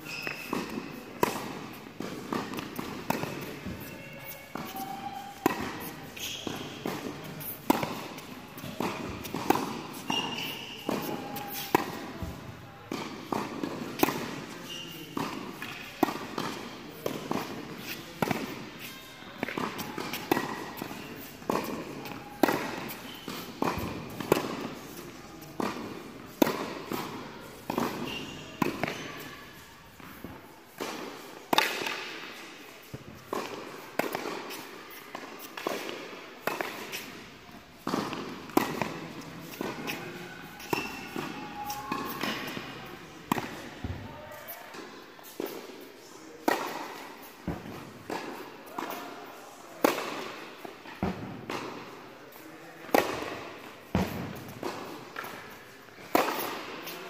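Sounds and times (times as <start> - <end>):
racket hitting tennis ball: 0.2 - 44.0, 44.7 - 45.8, 46.4 - 49.2, 49.8 - 57.0.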